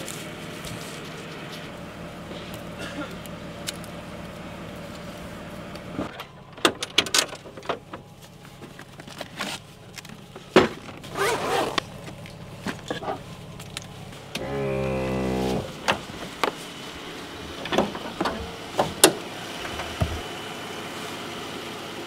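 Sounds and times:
clicks and knocks of gear: 5.7 - 14.5
straps and bags rustling: 8.0 - 14.3.

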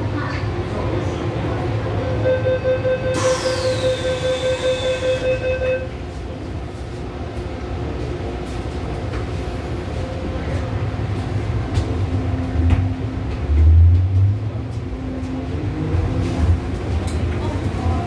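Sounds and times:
train rumbling: 0.0 - 18.0
door warning beeps: 2.1 - 5.9.

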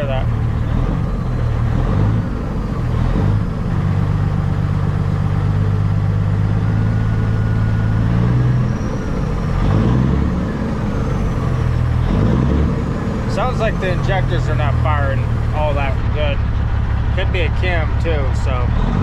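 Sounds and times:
man talking: 0.0 - 0.3, 13.3 - 16.5, 17.1 - 18.8
diesel engine misfiring: 0.0 - 19.0.

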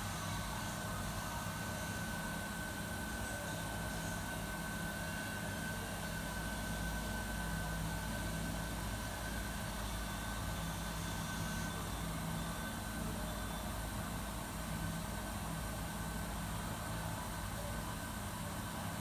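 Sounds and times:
kitchen machinery low drone: 0.0 - 19.0.

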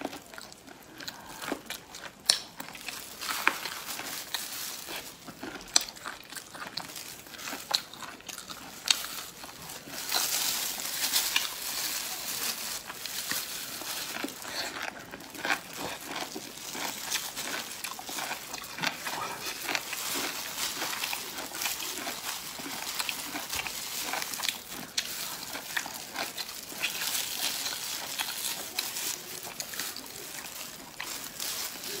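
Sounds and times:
wet chewing and lip-smacking: 0.1 - 3.7, 14.1 - 32.0.

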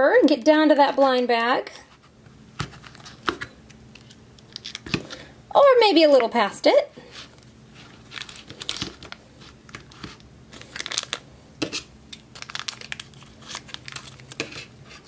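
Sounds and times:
plastic bag crinkling: 7.1 - 11.3, 12.2 - 15.0.

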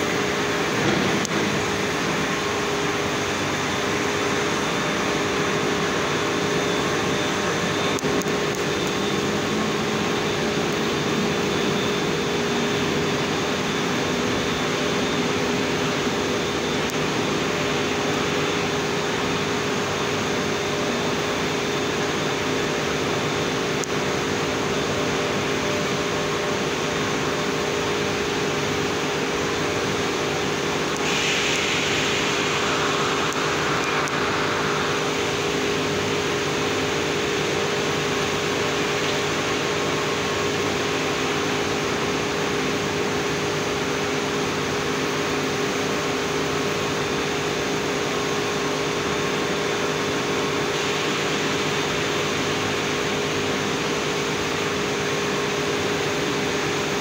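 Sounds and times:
industrial machinery roar: 0.0 - 57.0
bright hiss: 28.9 - 43.3, 48.0 - 56.5.

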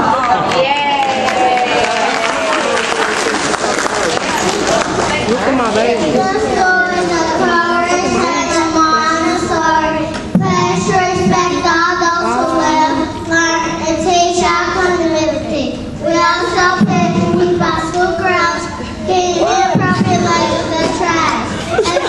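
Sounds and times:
children singing into microphone: 6.0 - 22.0.

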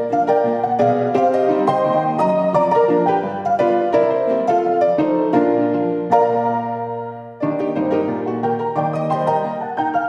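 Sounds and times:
piano music: 0.0 - 10.0.

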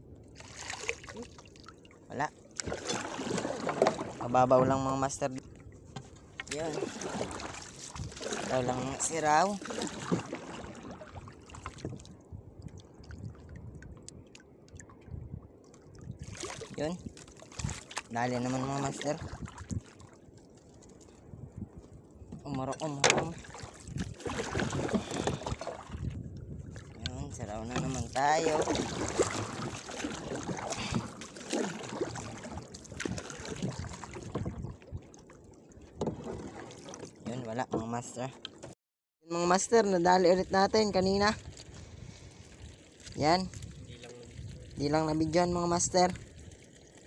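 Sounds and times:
water lapping at boat hull: 0.0 - 38.8, 39.5 - 47.0
small drips and ticks: 11.5 - 18.1.

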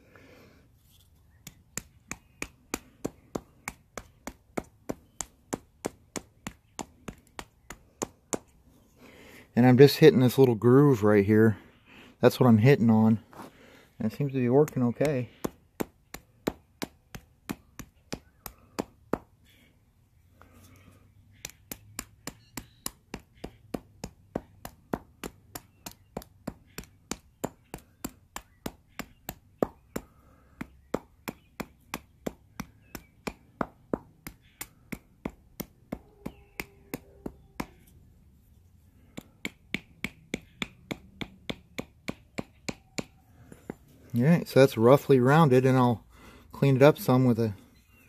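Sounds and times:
stone chopping wooden stick: 1.4 - 8.6, 14.6 - 19.4, 21.4 - 37.9, 39.1 - 43.8.

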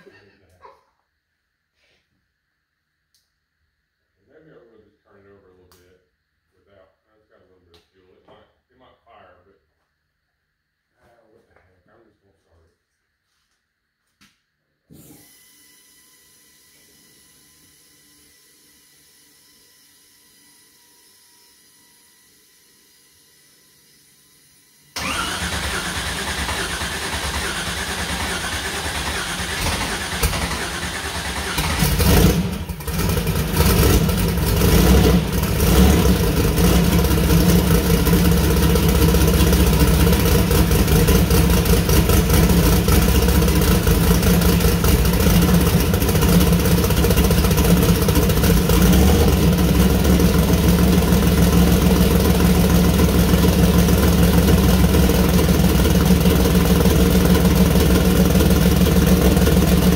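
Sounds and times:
starter motor cranking: 25.0 - 36.3
engine running: 25.0 - 59.9.

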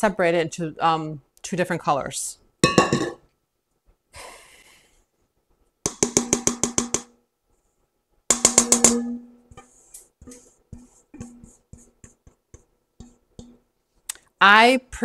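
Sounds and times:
ringing metal bowl taps: 2.6 - 3.2, 8.3 - 9.3, 13.0 - 13.6.

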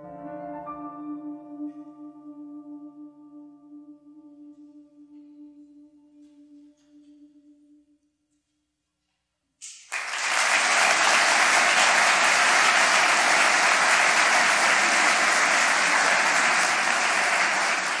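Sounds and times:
audience applauding: 9.6 - 18.0.

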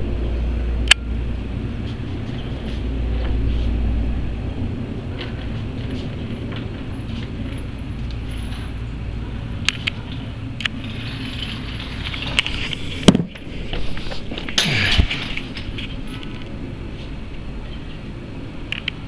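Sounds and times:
turboprop engines droning overhead: 0.0 - 19.0
rustle: 5.1 - 19.0
scattered clicks: 9.6 - 10.8, 18.7 - 19.0.

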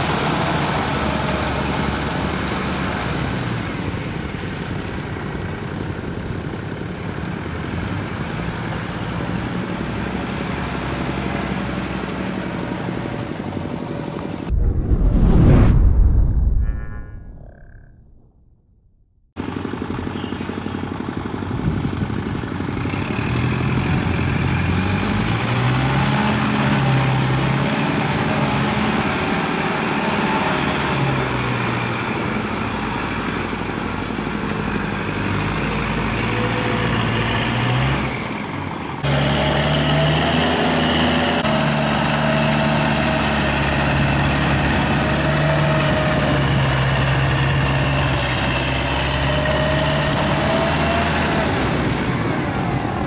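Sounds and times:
tractor diesel engine under load: 0.0 - 14.2, 19.4 - 53.0.

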